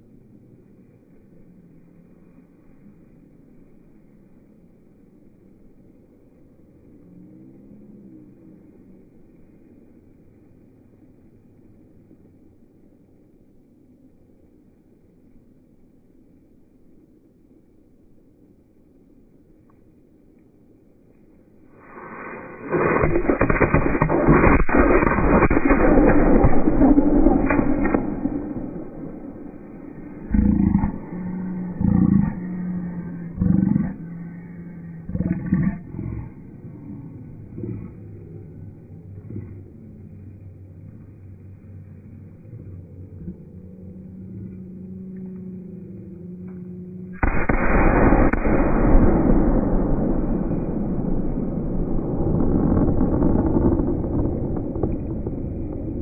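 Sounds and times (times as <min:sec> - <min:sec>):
low steady hum: 0:00.0 - 0:56.0
firework crackling: 0:21.4 - 0:39.0, 0:47.2 - 0:56.0
firework hissing rush: 0:21.7 - 0:32.4, 0:47.2 - 0:54.5.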